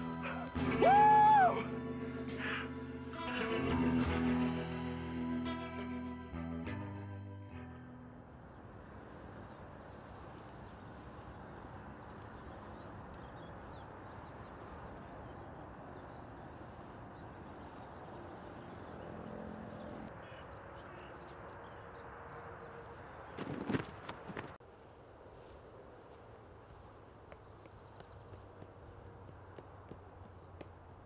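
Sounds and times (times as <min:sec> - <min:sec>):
guitar music: 0:00.0 - 0:08.3
outdoor background noise: 0:00.0 - 0:31.0.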